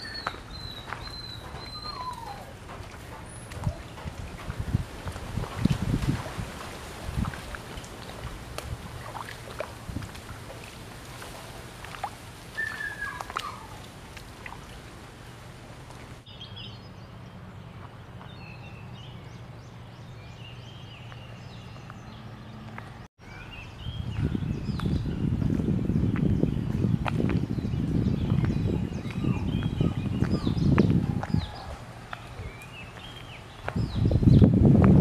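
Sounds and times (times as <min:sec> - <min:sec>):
birds chirping: 0:00.0 - 0:05.4, 0:12.5 - 0:34.5.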